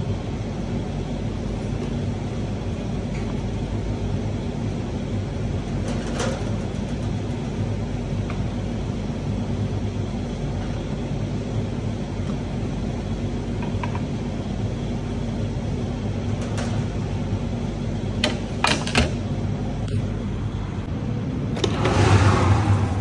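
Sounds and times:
kitchen ventilation hum: 0.0s - 23.0s
oven door rush of noise: 4.7s - 9.7s, 15.6s - 20.2s, 21.0s - 23.0s.

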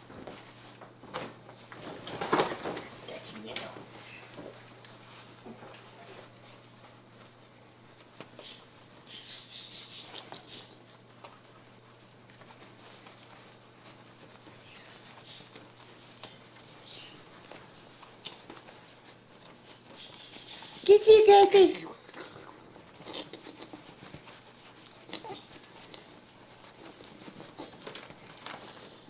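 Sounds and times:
monkeys scrambling on mesh: 0.0s - 29.0s.

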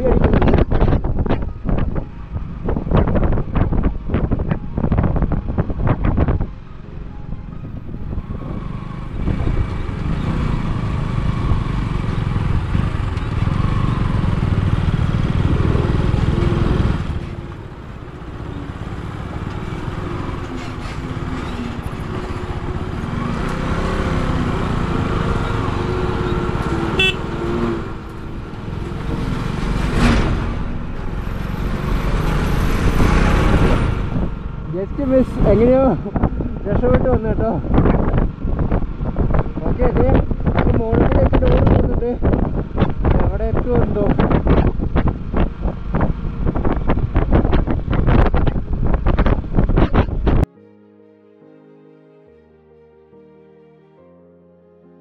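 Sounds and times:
car engine and road rumble: 0.0s - 50.5s.

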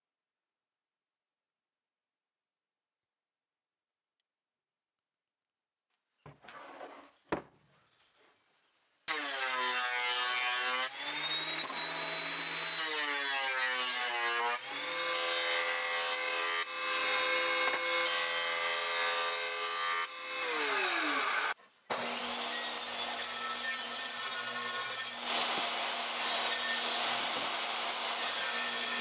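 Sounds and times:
jointer planing board: 9.1s - 29.0s
thickness planer cutting board: 21.9s - 29.0s.

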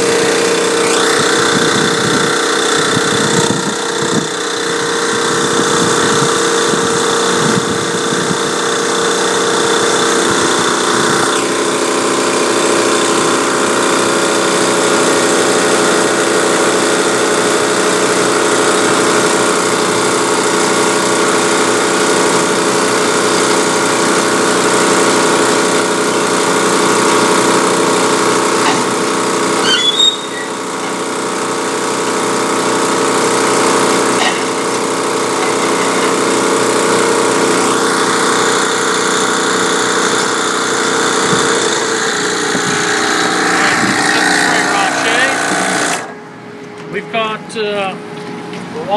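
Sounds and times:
pump engine running: 0.0s - 48.9s
short squeak: 29.6s - 30.6s.

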